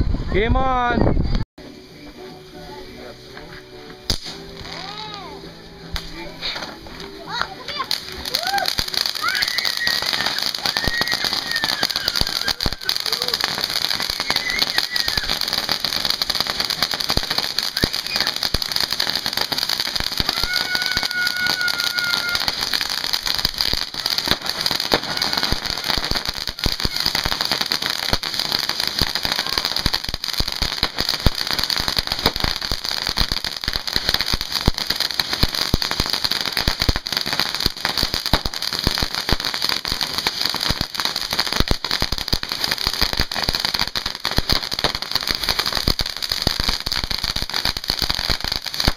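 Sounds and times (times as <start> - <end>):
fireworks hissing and crackling: 0.0 - 48.9
high whistle: 14.1 - 15.4, 17.7 - 18.4.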